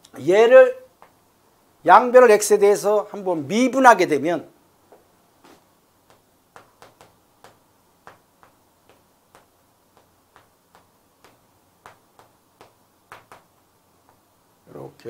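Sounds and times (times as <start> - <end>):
chalk tapping on chalkboard: 5.4 - 14.3.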